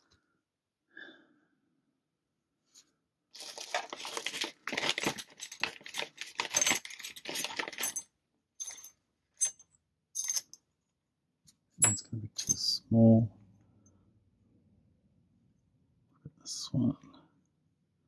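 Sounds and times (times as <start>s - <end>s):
metal lock parts rattling: 3.8s - 10.6s.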